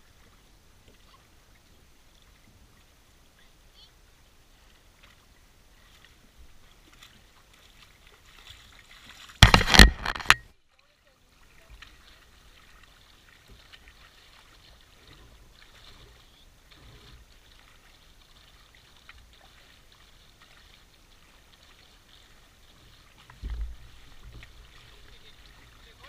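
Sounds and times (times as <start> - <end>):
water lapping around kayak hull: 0.0 - 26.0
small splashes: 4.5 - 26.0
low thump: 9.4 - 10.4, 23.4 - 24.5.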